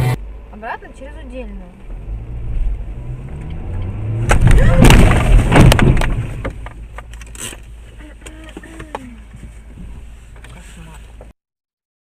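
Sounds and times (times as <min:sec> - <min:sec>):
engine and road rumble: 0:00.0 - 0:11.4
car collision crunching: 0:04.1 - 0:09.1.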